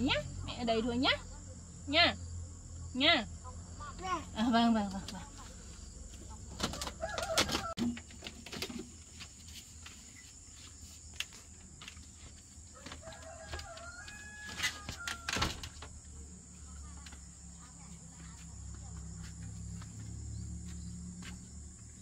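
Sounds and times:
rooster crowing: 0:06.7 - 0:07.8, 0:12.7 - 0:15.7.

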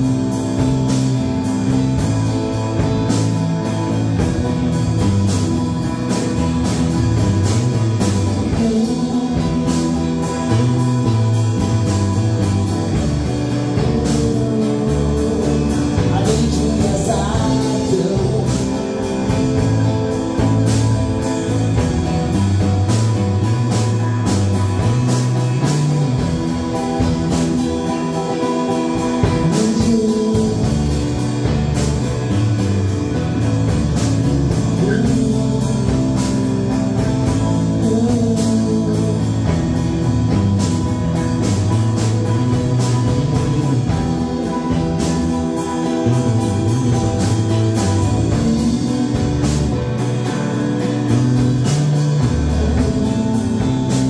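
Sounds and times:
drum kit beat: 0:00.0 - 0:54.0
electric guitar: 0:00.0 - 0:54.0
strummed acoustic guitars: 0:00.0 - 0:54.0
man singing: 0:06.8 - 0:12.8, 0:13.5 - 0:21.6, 0:27.8 - 0:31.7, 0:34.5 - 0:40.6, 0:42.1 - 0:54.0.

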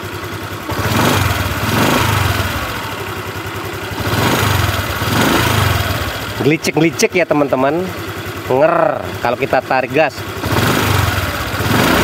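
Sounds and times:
rapid engine ticking: 0:00.0 - 0:12.0
scooter engine revving: 0:00.0 - 0:12.0.

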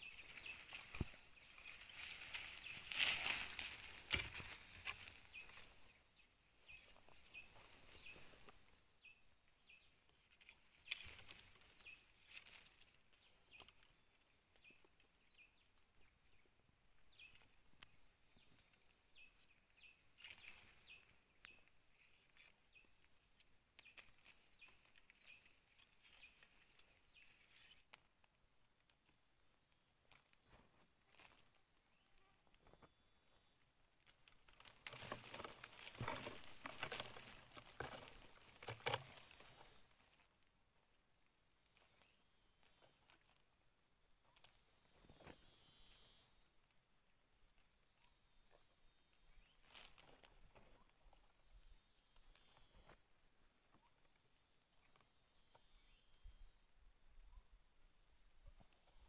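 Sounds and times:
rustles and clicks: 0:00.0 - 0:05.9, 0:34.0 - 0:40.2.

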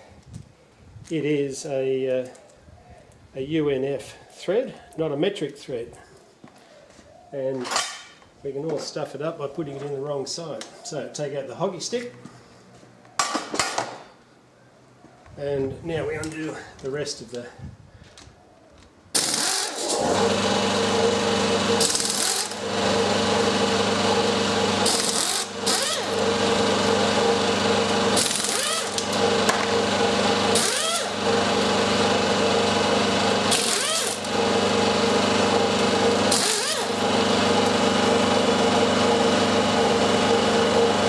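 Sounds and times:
pneumatic air ratchet running: 0:19.2 - 0:39.2.

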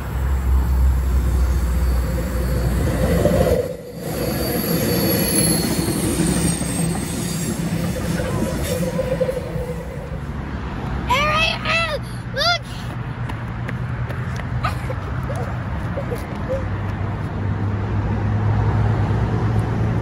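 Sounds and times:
train wheels rumbling on rails: 0:00.0 - 0:11.1
thin high tones: 0:00.3 - 0:10.4.

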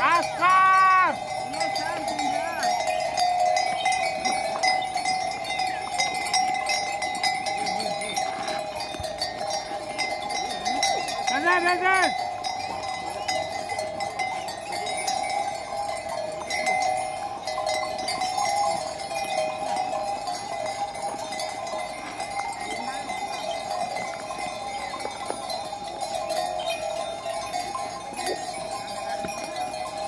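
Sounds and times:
sheep bell ringing and clanking: 0:00.0 - 0:30.0.

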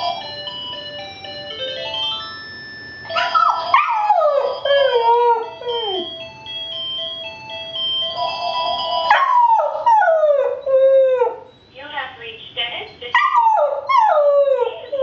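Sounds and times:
phone ringtone melody: 0:00.0 - 0:11.2
puppy howling: 0:03.1 - 0:06.1, 0:09.1 - 0:11.5, 0:13.1 - 0:15.0.

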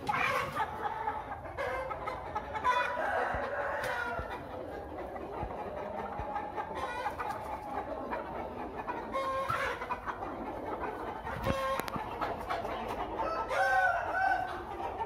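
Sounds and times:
chickens clucking: 0:00.0 - 0:15.0
roosters crowing: 0:02.6 - 0:04.4, 0:13.1 - 0:14.7.

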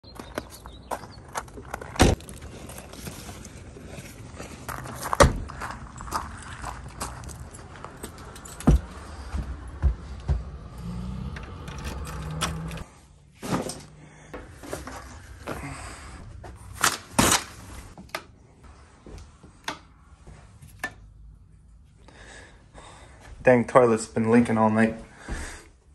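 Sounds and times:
outdoor background noise: 0:00.0 - 0:25.9
footsteps: 0:00.2 - 0:11.6
keys and door handling: 0:05.9 - 0:09.8, 0:11.3 - 0:12.8.

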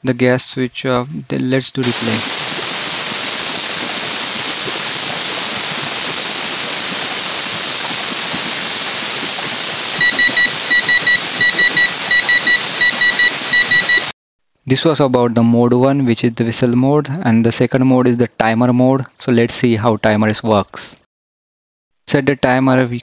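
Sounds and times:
steady loud hiss: 0:01.8 - 0:14.1
electronic buzzer beeping: 0:10.0 - 0:14.1.

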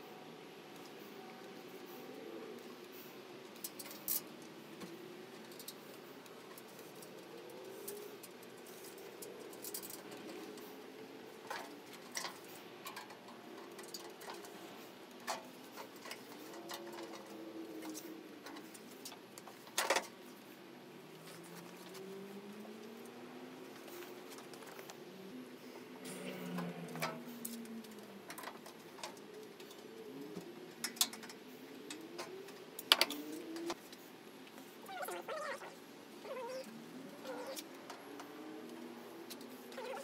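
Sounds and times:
light clicks and metal knocks: 0:02.6 - 0:20.5, 0:26.0 - 0:34.8.

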